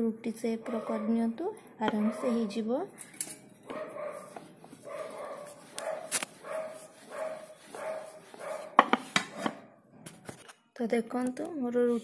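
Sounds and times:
rolling pin rolling dough: 3.7s - 10.2s.

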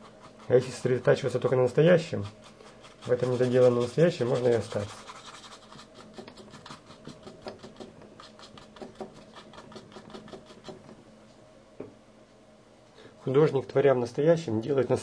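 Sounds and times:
paintbrush scrubbing paint: 0.0s - 10.9s.

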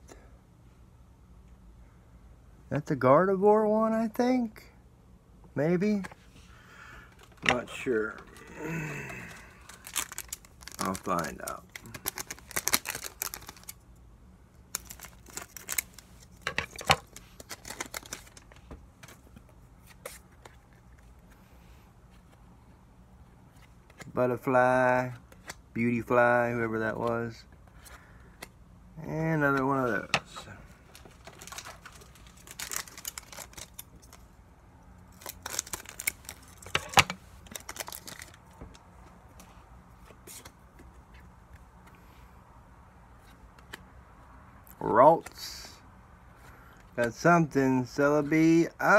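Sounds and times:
trading cards rustling and clicking: 7.1s - 13.8s, 14.7s - 21.4s, 29.4s - 34.3s, 35.1s - 42.1s.

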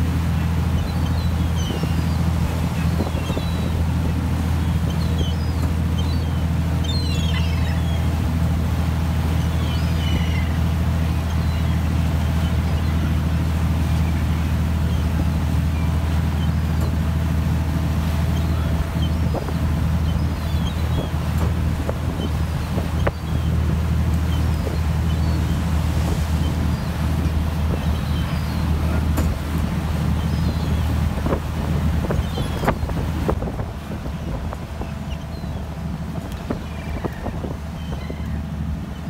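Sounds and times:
boat engine droning: 0.0s - 39.0s
gulls calling: 0.0s - 39.0s
wind on microphone: 0.0s - 39.0s.

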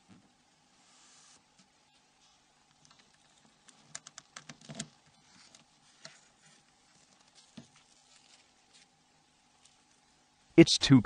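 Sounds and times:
small plastic clicks: 2.7s - 5.0s.

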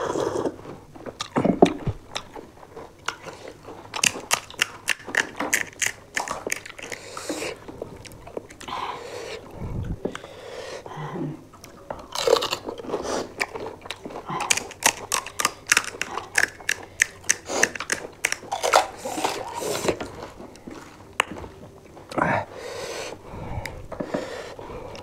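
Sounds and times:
wet chewing: 0.2s - 10.4s, 11.5s - 22.2s
crisp shells crunching: 3.1s - 8.7s, 12.0s - 21.0s.

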